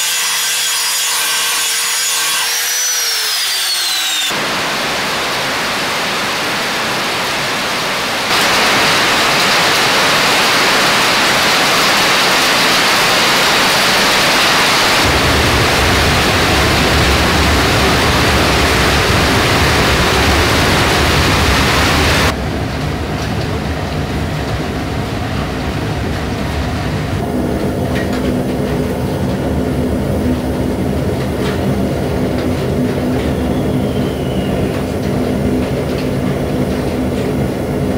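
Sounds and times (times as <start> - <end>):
steady rain falling: 4.3 - 37.9
forge low rumble: 14.1 - 37.9.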